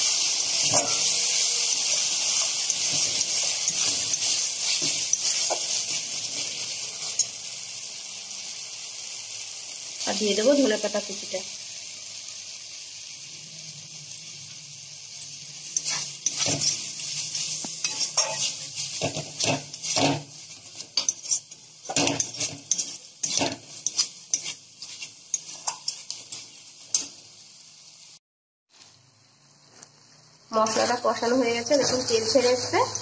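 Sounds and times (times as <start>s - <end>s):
oil sizzling: 0.0s - 33.0s
metal spatula scraping a pan: 0.5s - 7.4s, 15.6s - 27.2s, 30.6s - 32.7s.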